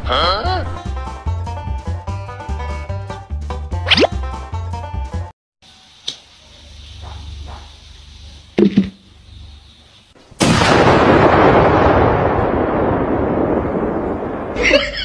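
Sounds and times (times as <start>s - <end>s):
firecracker blast: 10.4s - 15.0s.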